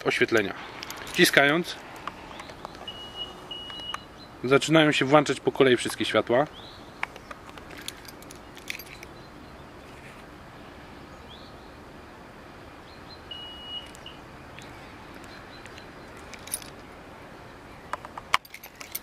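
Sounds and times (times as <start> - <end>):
faint outdoor background noise: 0.0 - 19.0
rising bird chirp: 1.8 - 4.5, 12.8 - 17.9.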